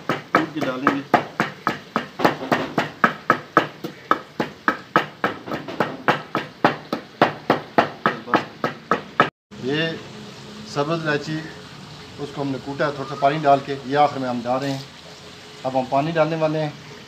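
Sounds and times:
pestle pounding in a mortar: 0.0s - 9.3s.

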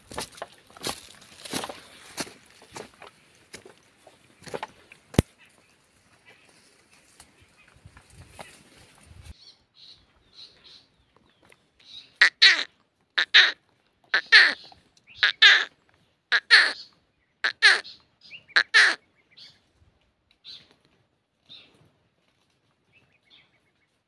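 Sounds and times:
bird calling harshly: 11.9s - 19.6s.

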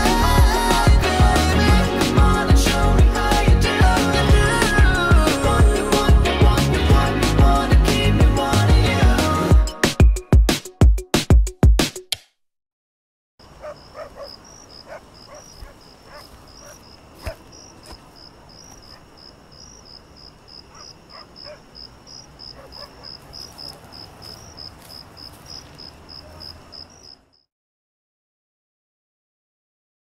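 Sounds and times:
insect chirping: 13.4s - 27.5s.

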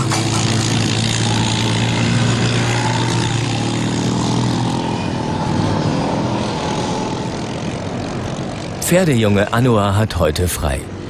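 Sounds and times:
quad bike engine running: 0.0s - 8.8s.

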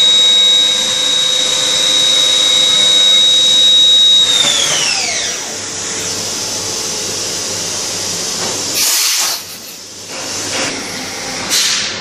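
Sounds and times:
machine enclosure hiss: 8.8s - 9.5s.

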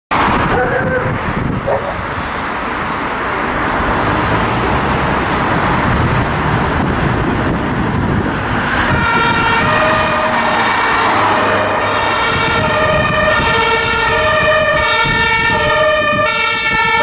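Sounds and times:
passing cars and vans: 0.1s - 17.0s
two-tone siren: 8.7s - 17.0s.

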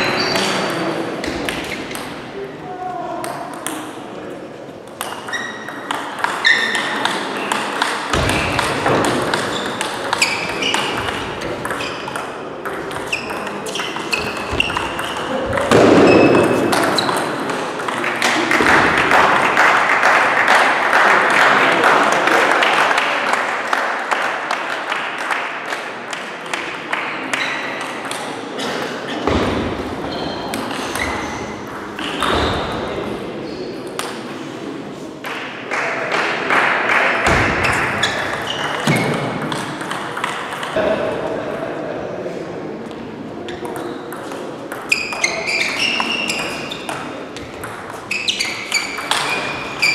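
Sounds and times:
table tennis ball pings: 4.9s - 18.0s, 37.2s - 40.8s, 43.6s - 49.9s.

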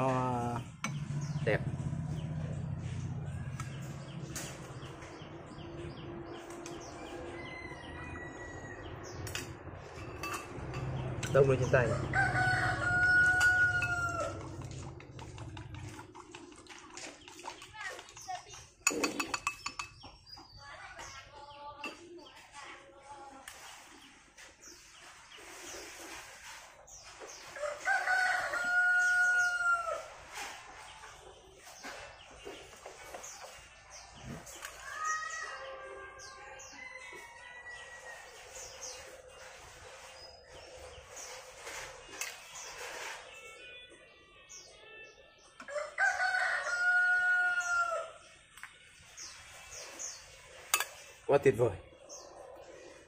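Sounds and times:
small birds chirping: 0.0s - 53.0s
rooster crowing: 7.0s - 9.2s, 11.9s - 14.7s, 27.6s - 30.1s, 45.6s - 48.2s.

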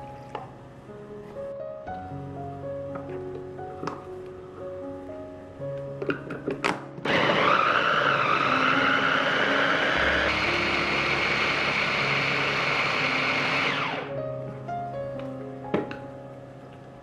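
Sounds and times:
electric food chopper whining: 7.0s - 14.1s.

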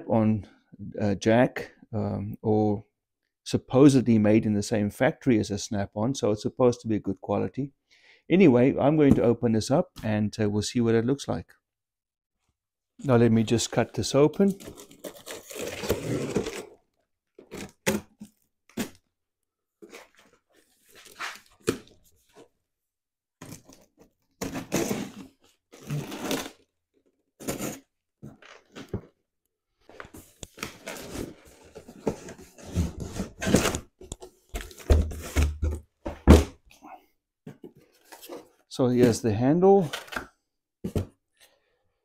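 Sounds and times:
cardboard scraping and crinkling: 14.5s - 16.8s, 19.8s - 22.5s, 23.4s - 26.7s, 30.0s - 35.8s.

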